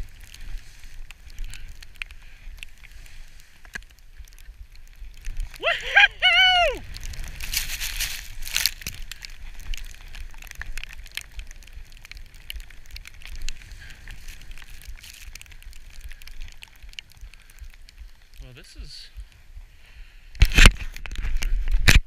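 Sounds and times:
wind rumble on microphone: 0.0s - 22.0s
skis hissing through snow: 7.1s - 8.7s.

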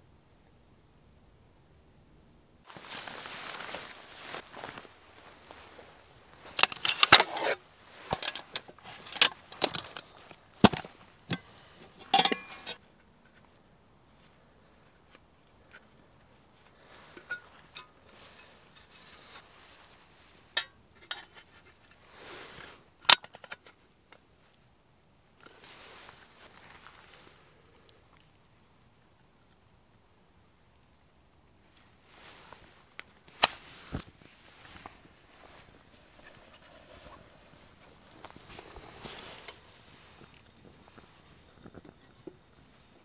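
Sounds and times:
metal clinks and knocks: 6.6s - 12.8s.

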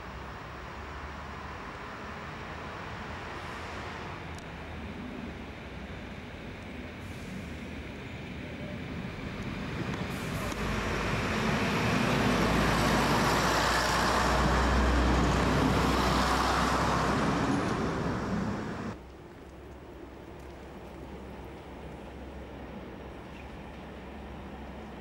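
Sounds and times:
diesel train passing: 0.0s - 19.0s.

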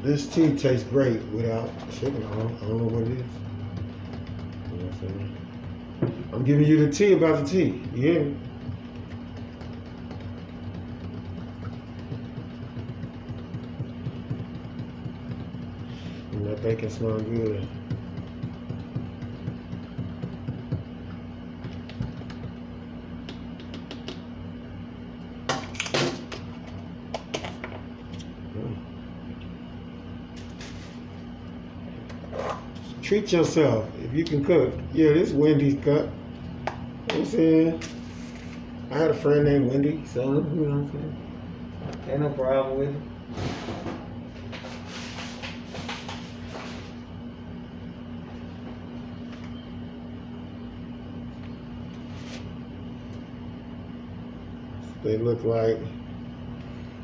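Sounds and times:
kitchen appliance hum: 0.0s - 57.0s
soft rustling and scraping: 44.3s - 47.0s, 52.0s - 52.6s.

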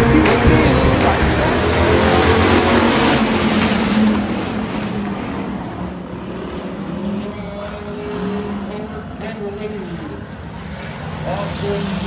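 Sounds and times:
stock car engines revving: 0.0s - 12.0s.

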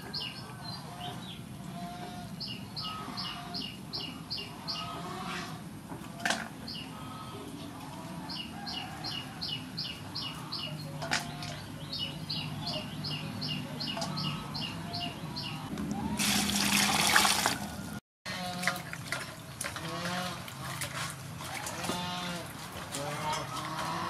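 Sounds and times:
water splashing in metal basin: 16.1s - 24.0s.

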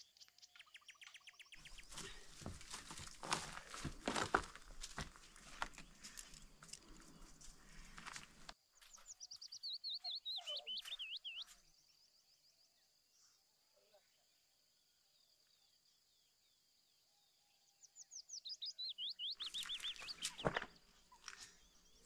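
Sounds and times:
songbird singing trill: 0.0s - 2.0s, 8.8s - 13.0s, 15.1s - 22.0s.

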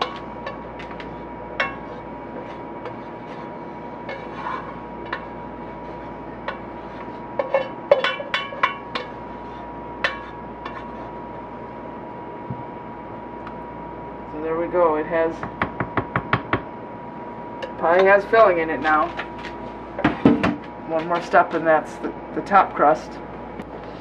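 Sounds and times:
spatula scraping metal pot: 0.0s - 11.2s.

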